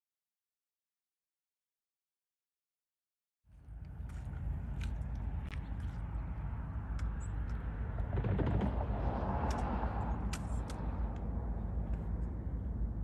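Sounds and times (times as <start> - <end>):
passing train rumbling: 4.3 - 13.0.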